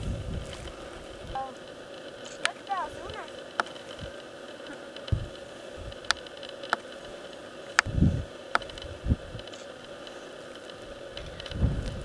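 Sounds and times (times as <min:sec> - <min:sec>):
wind buffeting microphone: 0:00.0 - 0:09.6, 0:10.8 - 0:12.0
faint steady hiss: 0:00.0 - 0:12.0
sharp clicks and taps: 0:01.6 - 0:05.3, 0:05.9 - 0:07.9.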